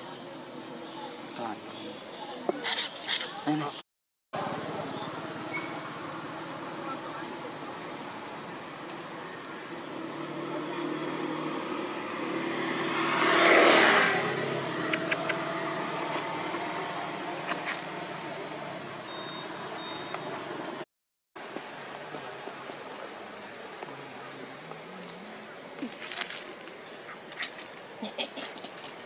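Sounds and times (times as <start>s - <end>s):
motor vehicle passing by: 9.7s - 19.0s.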